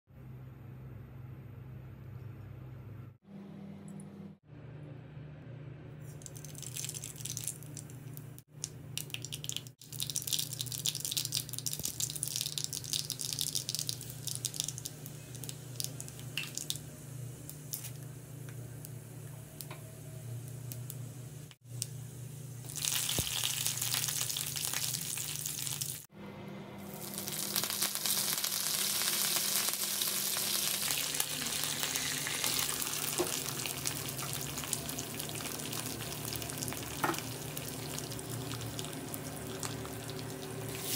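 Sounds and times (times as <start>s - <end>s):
hot oil sizzling and crackling: 6.2s - 19.7s, 22.6s - 26.1s, 26.9s - 40.9s.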